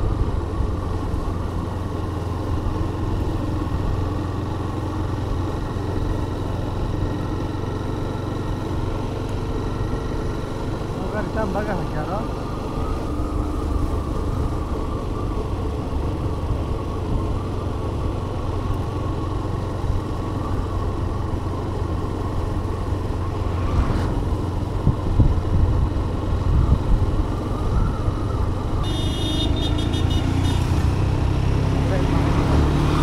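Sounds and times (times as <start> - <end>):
motorcycle engine hum: 0.0 - 33.0
wind rumbling on microphone: 23.1 - 28.8.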